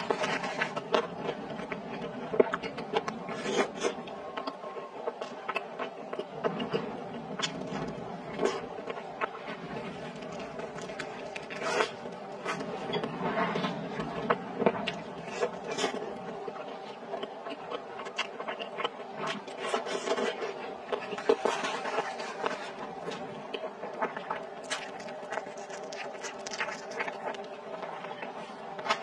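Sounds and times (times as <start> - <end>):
chewing and lip smacking: 14.8 - 29.0.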